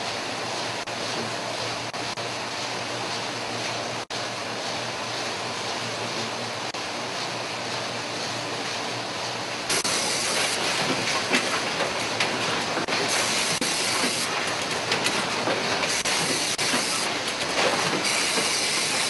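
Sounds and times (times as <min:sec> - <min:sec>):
machinery hissing and rattling: 0:09.7 - 0:19.0.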